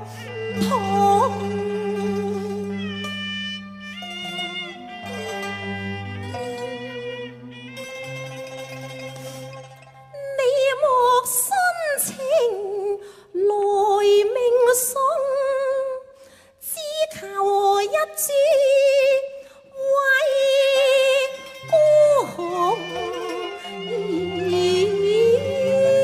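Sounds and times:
woman singing opera melody: 0.0s - 3.0s, 10.1s - 26.0s.

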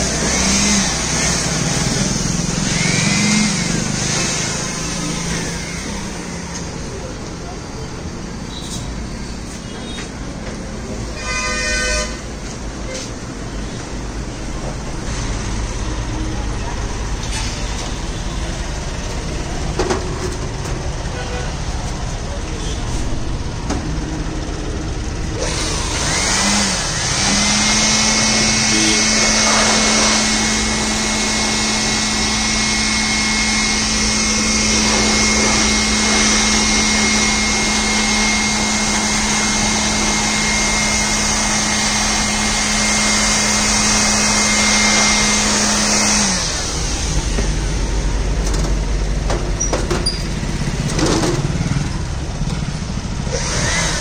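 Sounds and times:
electric air blower whine: 0.0s - 7.3s, 21.0s - 49.3s, 50.3s - 54.0s.

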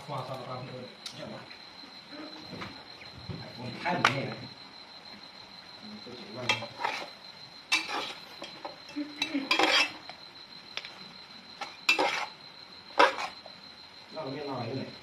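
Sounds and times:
metal spatula scraping pot: 6.5s - 8.6s, 9.2s - 10.0s, 11.9s - 12.4s, 13.0s - 13.4s.

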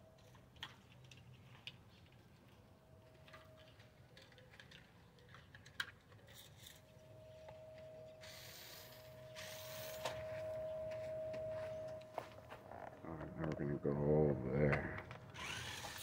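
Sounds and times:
toy electric motor whining: 8.2s - 10.3s, 15.3s - 16.0s.

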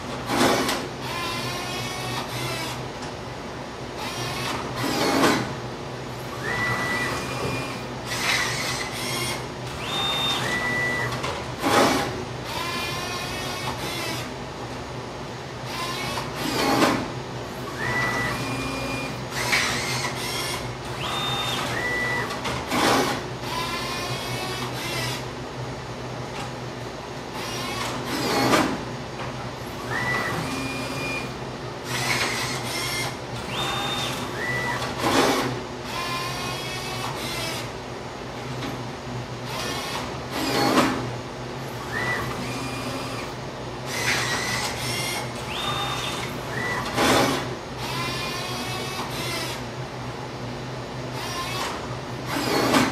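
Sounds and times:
motors whining: 17.7s - 25.2s, 29.8s - 37.7s, 41.8s - 49.6s
loud mechanical clunk: 51.6s - 52.9s.

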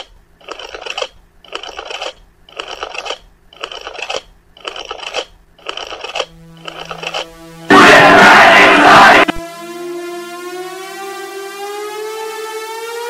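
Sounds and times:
low buzzing hum: 5.3s - 10.8s
scratchy static bursts: 6.6s - 9.4s.

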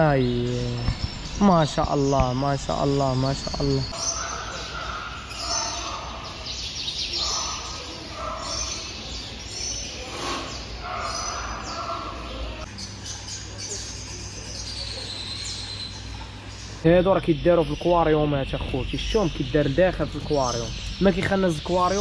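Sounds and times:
steady low hum: 0.0s - 8.2s, 10.4s - 22.0s
indistinct background voices: 0.0s - 12.7s
birds chirping: 0.0s - 22.0s.

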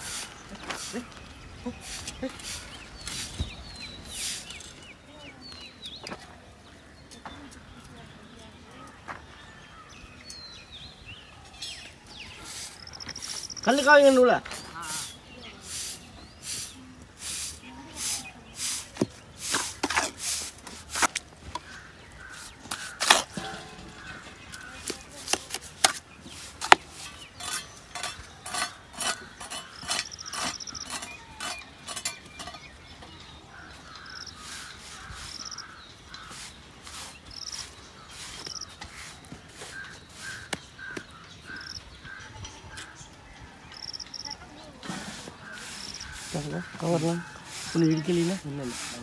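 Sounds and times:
crow cawing: 33.6s - 36.4s.

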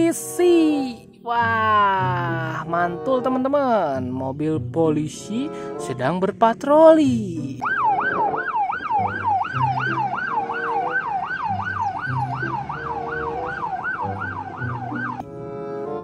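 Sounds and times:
police siren yelping: 7.6s - 15.2s.

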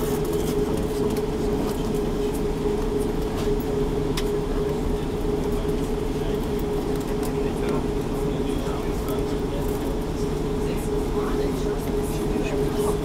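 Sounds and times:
aircraft cabin low rumble: 0.0s - 13.0s
mid-pitched hum: 0.0s - 13.0s.

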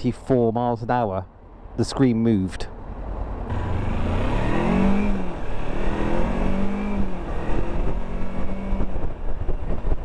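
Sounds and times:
motorcycle engine accelerating: 3.5s - 10.0s.

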